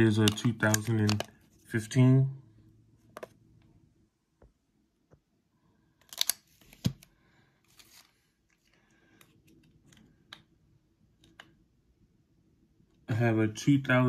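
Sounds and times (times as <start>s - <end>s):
light plastic clicks: 0.2s - 1.4s.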